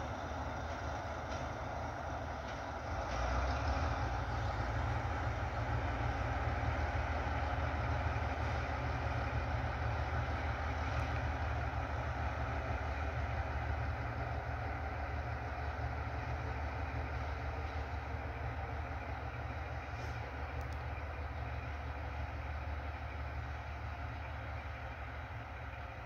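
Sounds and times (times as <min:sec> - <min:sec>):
locomotive diesel engine droning: 0:00.0 - 0:26.0.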